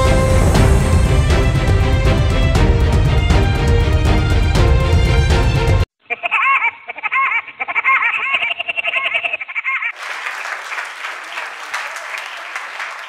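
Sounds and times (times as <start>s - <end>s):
applause: 9.9s - 13.0s.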